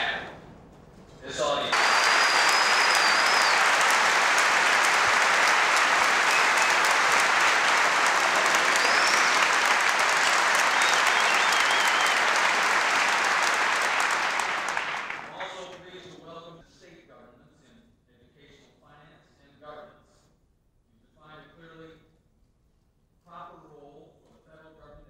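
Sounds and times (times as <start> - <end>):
large audience applauding: 1.7 - 15.8.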